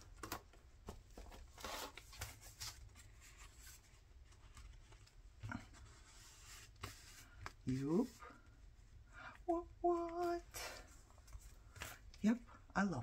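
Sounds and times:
paper and card rustling: 0:00.0 - 0:08.5.

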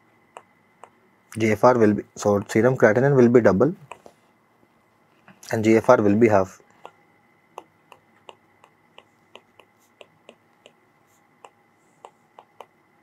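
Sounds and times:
stylus tapping on tablet: 0:00.3 - 0:01.0, 0:03.8 - 0:04.1, 0:06.8 - 0:10.8, 0:11.4 - 0:12.8.

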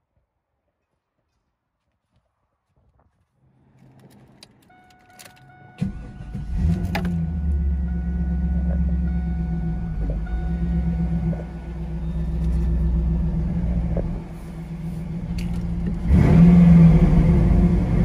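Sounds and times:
car engine starting and idling: 0:03.4 - 0:18.0
keys jingling in ignition: 0:03.7 - 0:07.2.

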